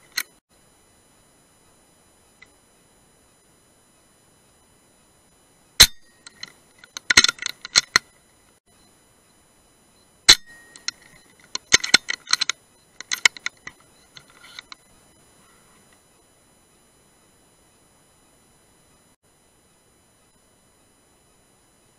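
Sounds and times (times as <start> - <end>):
rifle action metallic clicks: 5.8 - 8.1, 10.3 - 14.8.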